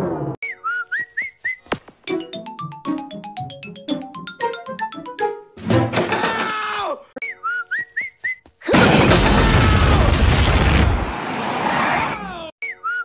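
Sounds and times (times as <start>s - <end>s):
cartoon up-and-down whistles: 0.4s - 1.7s, 12.6s - 13.0s
cartoon explosion: 8.7s - 11.2s.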